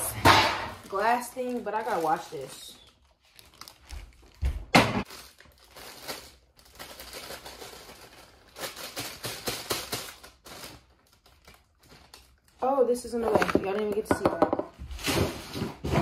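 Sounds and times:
loud bang of kitchen things: 0.0s - 0.9s, 4.7s - 5.1s
kitchen things clattering: 0.0s - 2.6s, 13.1s - 16.0s.

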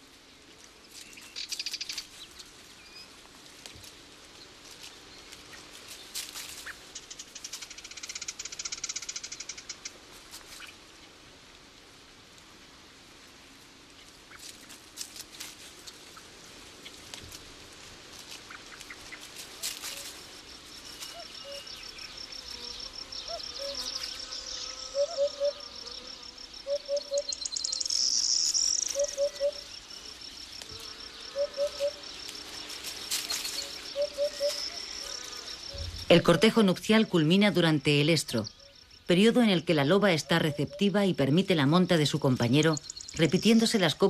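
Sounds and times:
pulsing insect trill: 19.9s - 39.7s, 42.4s - 44.0s
bird low notes: 33.3s - 36.4s.

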